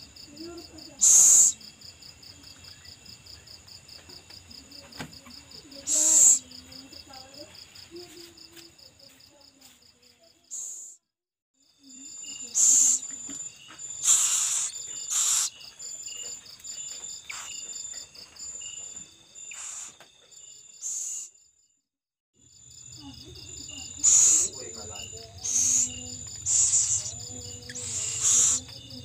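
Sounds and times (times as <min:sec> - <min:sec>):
crickets chirping: 0:00.0 - 0:11.0, 0:11.6 - 0:21.7, 0:22.4 - 0:29.0
owlets hissing: 0:01.0 - 0:01.6, 0:12.5 - 0:13.1, 0:14.0 - 0:15.6, 0:19.5 - 0:20.0, 0:20.8 - 0:21.3, 0:24.0 - 0:28.7.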